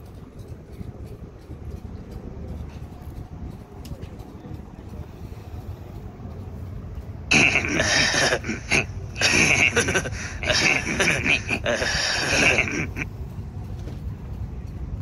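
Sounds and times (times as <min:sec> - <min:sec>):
person's breathy vocal sounds: 0:07.3 - 0:13.0.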